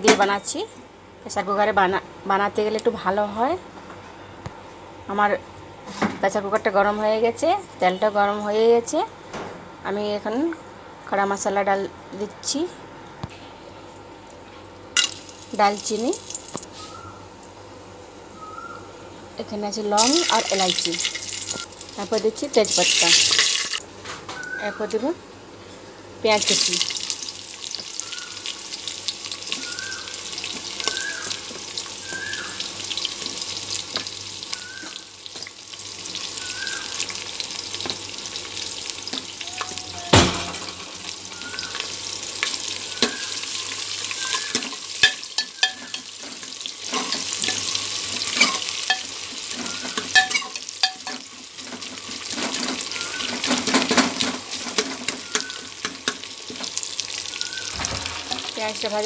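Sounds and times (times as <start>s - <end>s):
onions sizzling in oil: 15.0s - 18.4s, 19.5s - 23.8s, 26.2s - 59.0s.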